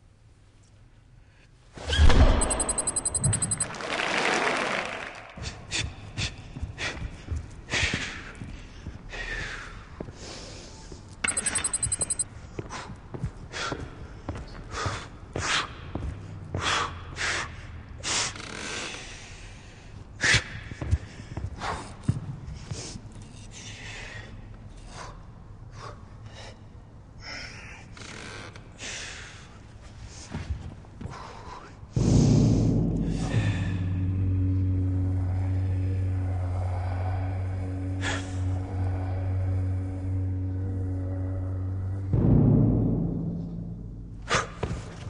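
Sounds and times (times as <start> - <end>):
electronic buzzing stutter: 2.4 - 3.7, 11.3 - 12.2.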